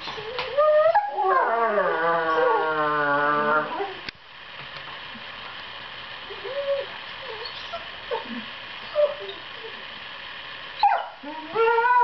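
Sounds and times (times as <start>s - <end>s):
puppy whining: 0.0s - 4.0s, 6.3s - 9.8s, 10.8s - 12.0s.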